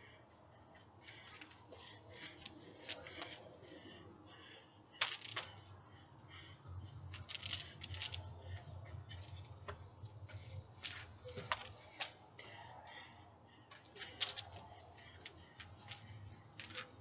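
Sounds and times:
faint low hum: 0:00.0 - 0:17.0
hula hoop swishes and taps: 0:09.2 - 0:12.2, 0:15.2 - 0:17.0.

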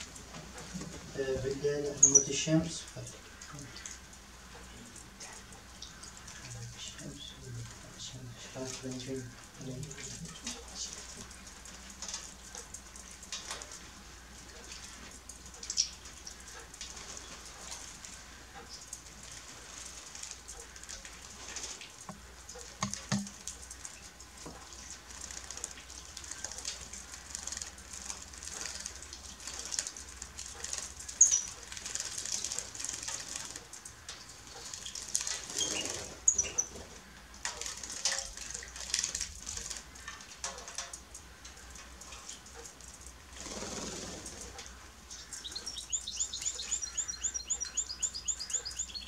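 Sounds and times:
birds splashing in water: 0:00.0 - 0:49.0
wing flutters: 0:09.8 - 0:40.6, 0:42.6 - 0:46.6.

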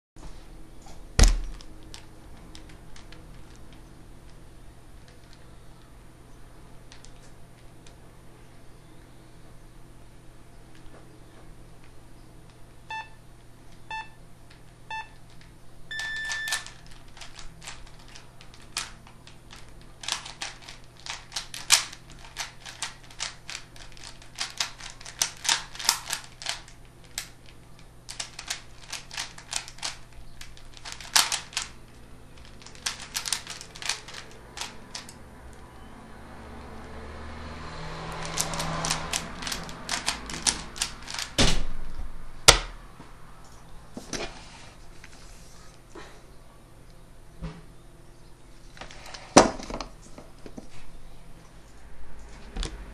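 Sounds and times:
electronic beeps: 0:15.9 - 0:16.6
puzzle cube clicking: 0:19.5 - 0:31.7, 0:32.4 - 0:35.2, 0:38.2 - 0:41.3.

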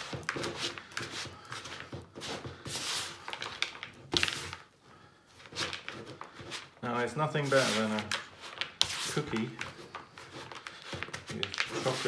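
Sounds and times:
spatula stirring cookie dough: 0:00.0 - 0:04.7, 0:05.5 - 0:12.0.

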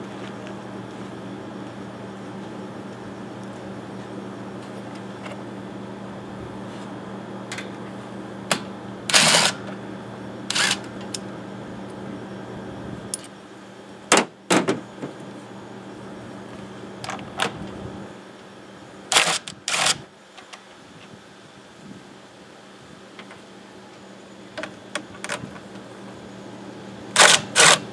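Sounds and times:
cordless drill running: 0:09.1 - 0:09.6, 0:10.5 - 0:10.9, 0:19.1 - 0:20.0, 0:27.1 - 0:27.9.

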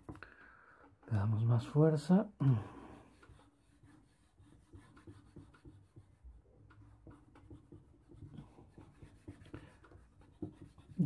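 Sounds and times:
charcoal scratching on paper: 0:03.1 - 0:11.0.

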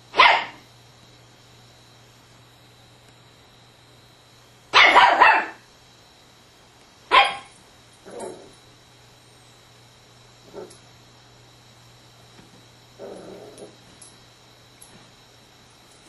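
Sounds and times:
small dog barking: 0:00.1 - 0:00.6, 0:04.7 - 0:05.6, 0:07.1 - 0:07.5.

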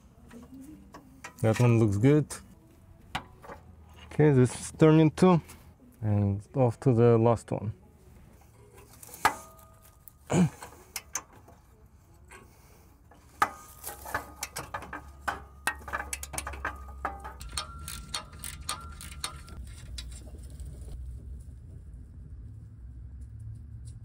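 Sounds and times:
sharp metal clanks: 0:12.3 - 0:20.1
hand ratchet clicking: 0:13.4 - 0:19.7.

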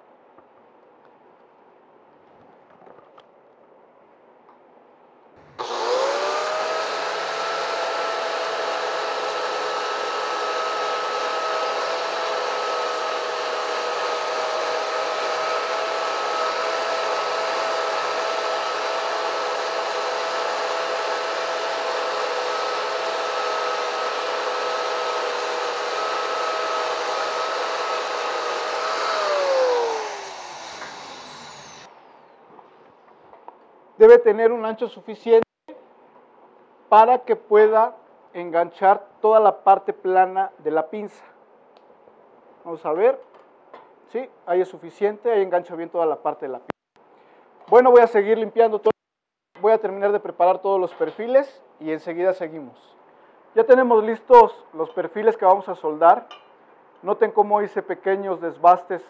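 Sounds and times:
angle grinder grinding metal: 0:05.4 - 0:31.9.

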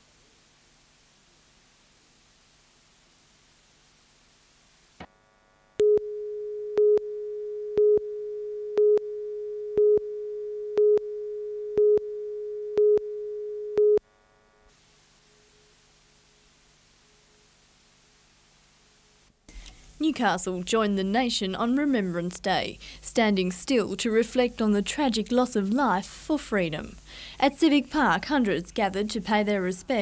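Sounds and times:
tape hiss: 0:00.0 - 0:30.0.

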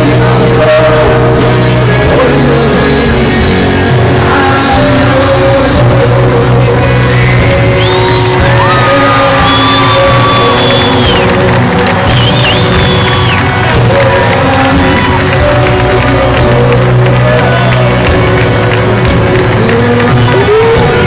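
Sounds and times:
rock band playing loudly: 0:00.0 - 0:21.0
crowd shouting and whooping: 0:06.6 - 0:21.0.

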